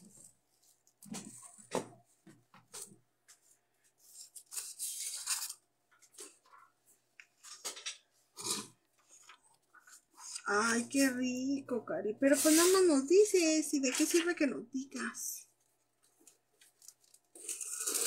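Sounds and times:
paper sheets rustling: 12.2s - 13.0s.

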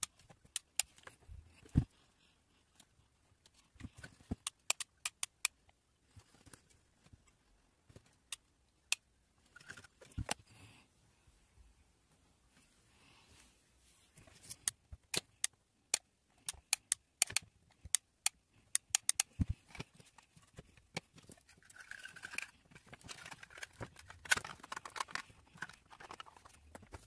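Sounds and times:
clicks and taps of model parts: 0.0s - 1.2s, 3.4s - 5.7s, 14.5s - 21.4s
rustling of cardboard and plastic: 6.0s - 8.3s, 19.3s - 27.0s.

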